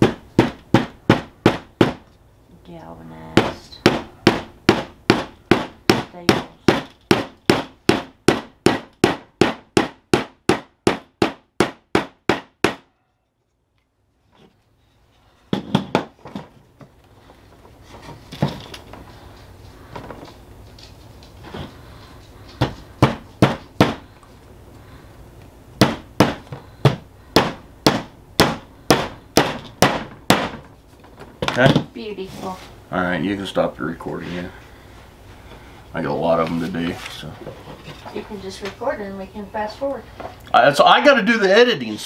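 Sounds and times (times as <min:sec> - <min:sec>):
hammer driving nails into wood: 0:00.0 - 0:02.0, 0:03.4 - 0:12.8, 0:22.6 - 0:24.1, 0:25.8 - 0:30.7.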